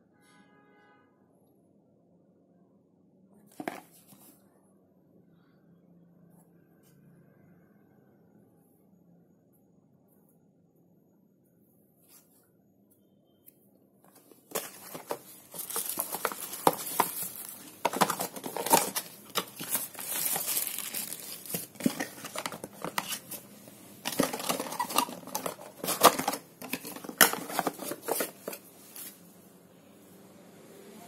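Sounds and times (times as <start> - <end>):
plastic wrapping crinkling: 14.2 - 29.2
cardboard box being opened: 14.5 - 23.4, 24.0 - 28.6.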